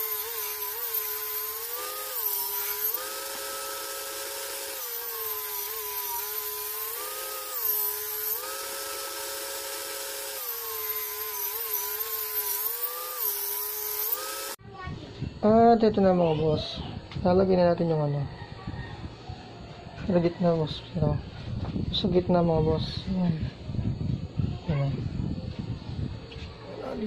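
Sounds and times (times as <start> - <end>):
power tool motor humming: 0.0 - 14.6.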